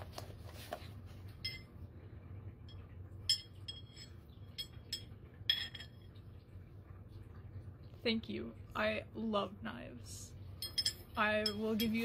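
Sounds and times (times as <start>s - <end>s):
knife blades clinking: 10.6s - 12.0s.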